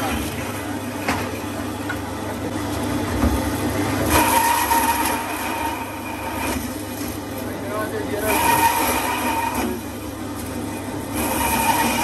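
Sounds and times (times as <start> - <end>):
band saw motor hum: 0.0 - 12.0
saw blade whining through bone: 4.1 - 6.8, 8.1 - 10.0, 10.7 - 12.0.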